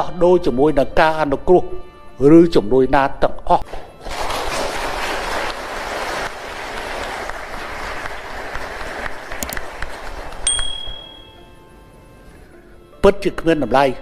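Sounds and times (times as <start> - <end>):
audience applauding: 4.0 - 10.5
high ringing tone: 10.5 - 11.6.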